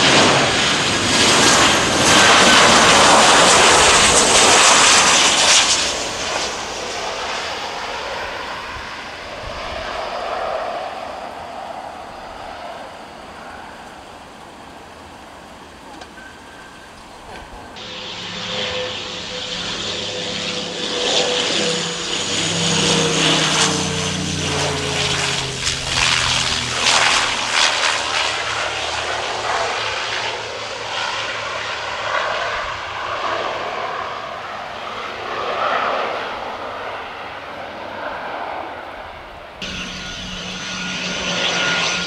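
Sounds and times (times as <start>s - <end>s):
turboprop airliner landing: 0.0s - 42.0s
engine whine falling in pitch: 17.8s - 32.2s, 39.6s - 42.0s.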